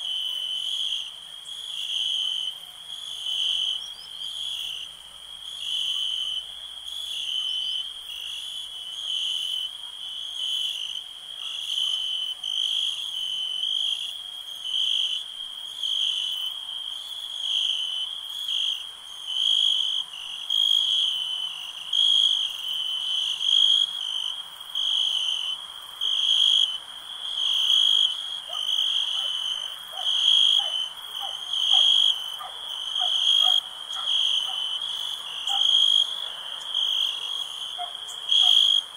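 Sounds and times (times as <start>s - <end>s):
insects chirping: 0.0s - 38.9s
frogs calling: 24.7s - 38.9s.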